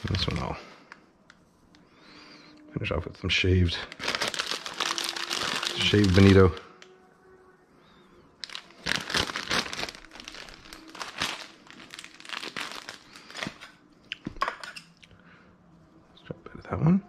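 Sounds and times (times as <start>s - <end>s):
plastic bag crinkling: 0.0s - 1.0s, 3.6s - 6.8s, 8.4s - 13.8s.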